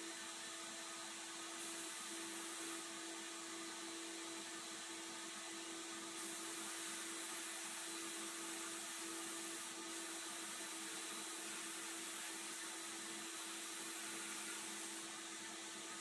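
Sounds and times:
abrasive blasting hiss: 6.2 - 15.3.

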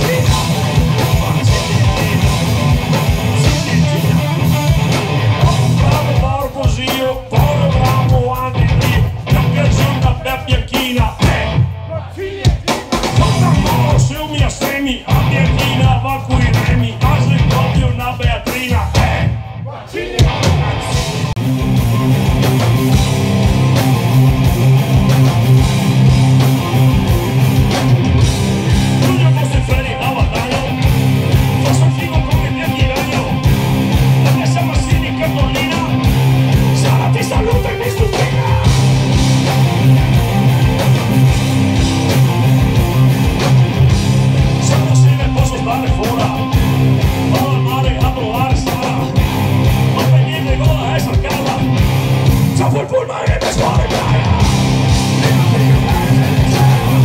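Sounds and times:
vocalist singing: 0.0 - 4.5, 5.3 - 21.1, 28.8 - 38.9, 44.4 - 57.0
bass guitar: 0.0 - 57.0
drums: 0.0 - 57.0
electric guitars: 0.0 - 57.0.

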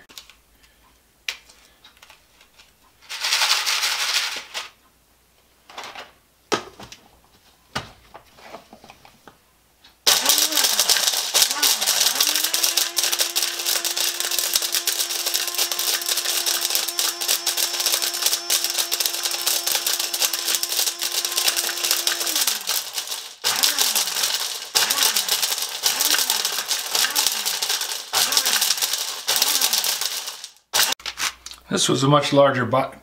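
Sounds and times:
plastic chips rattling in jar: 3.0 - 4.7, 10.1 - 31.4
blender motor running: 10.1 - 31.0.

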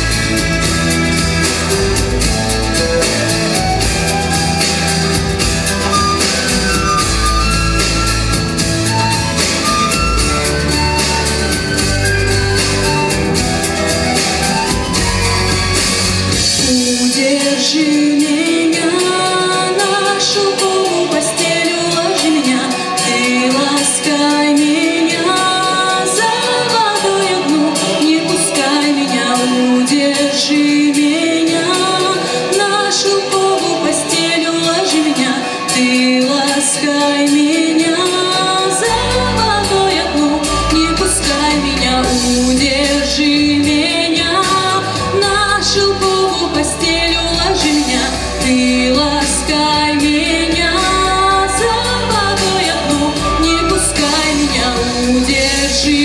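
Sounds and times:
deep bass line: 0.0 - 16.8
instrumental accompaniment: 0.0 - 56.0
woman singing into a microphone: 0.0 - 56.0.

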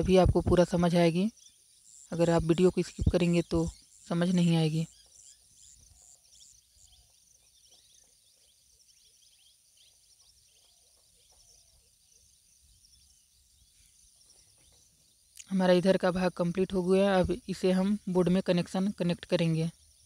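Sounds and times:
insects chirping: 0.0 - 20.0
small birds chirping: 0.0 - 20.0.

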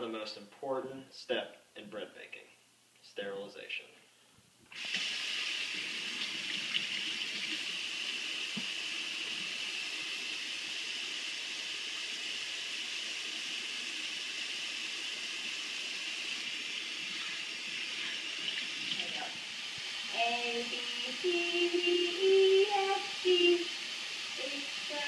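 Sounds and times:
faucet running into steel sink: 4.7 - 20.7.

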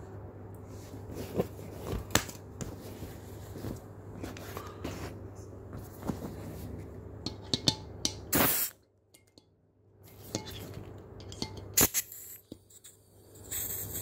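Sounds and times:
short hisses of gas: 8.3 - 8.8, 11.8 - 12.4, 13.4 - 14.0.

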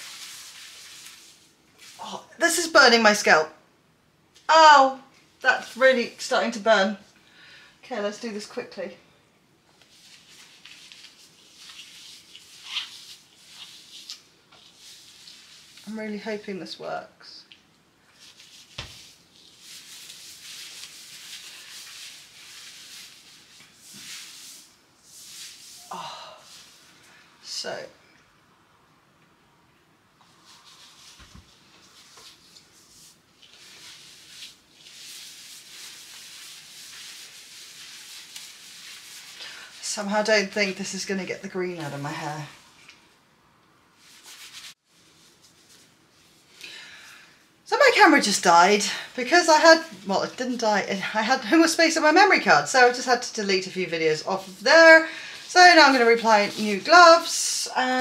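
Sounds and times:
gloved hands rubbing wet hair: 0.0 - 2.7, 9.8 - 16.4, 18.1 - 27.0, 30.2 - 43.1, 44.0 - 46.6, 47.7 - 57.9.

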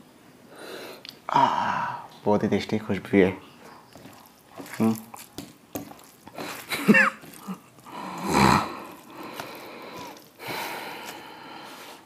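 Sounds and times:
chewing noises: 3.6 - 12.0.

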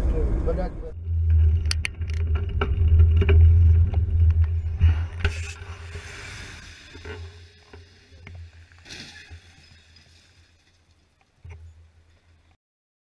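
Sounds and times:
low rumble of vehicles: 0.0 - 5.8
tyres hissing through water: 5.0 - 10.6.

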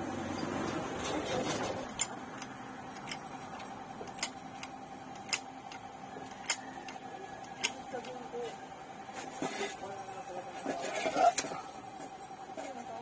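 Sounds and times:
steady hum: 0.0 - 13.0
sharp metallic clicks: 1.8 - 8.2.

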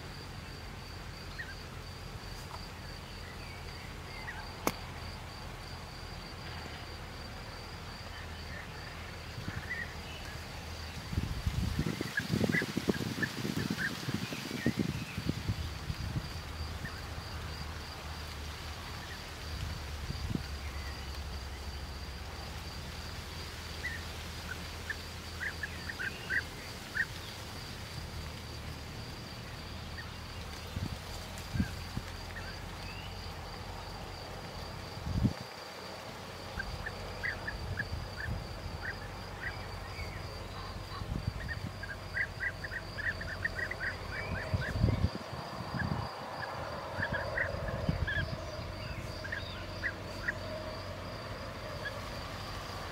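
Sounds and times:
rapid chirping calls: 23.8 - 27.4, 36.6 - 45.1
pulsing insect trill: 36.4 - 52.9.

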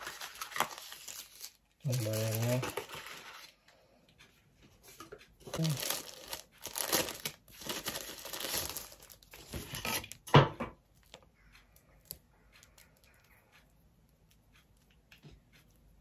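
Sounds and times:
plastic packaging crinkling: 0.0 - 3.5, 5.4 - 10.2.

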